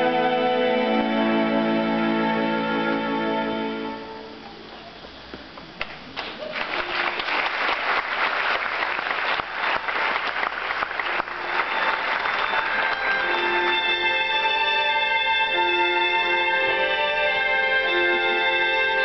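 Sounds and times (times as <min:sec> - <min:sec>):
instrumental music: 0:00.0 - 0:04.8, 0:11.2 - 0:19.0
audience applauding: 0:05.8 - 0:14.4.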